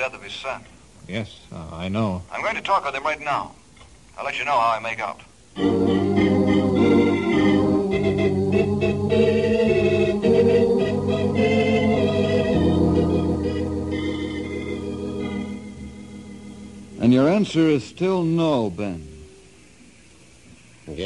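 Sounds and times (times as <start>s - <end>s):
sustained organ chords: 5.6s - 19.8s.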